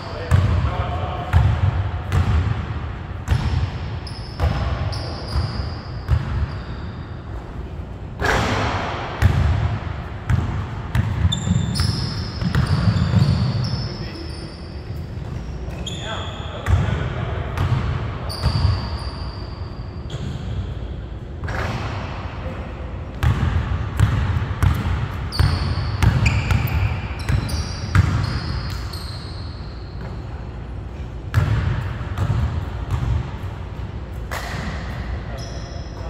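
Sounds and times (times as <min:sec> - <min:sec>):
sneakers squeaking on court: 0:03.2 - 0:07.6, 0:10.3 - 0:17.0, 0:17.6 - 0:20.6, 0:23.2 - 0:36.0.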